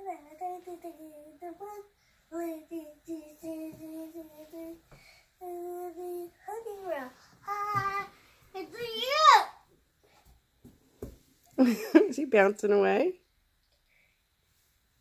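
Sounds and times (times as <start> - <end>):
boy singing wordless tune: 0.0 - 8.9.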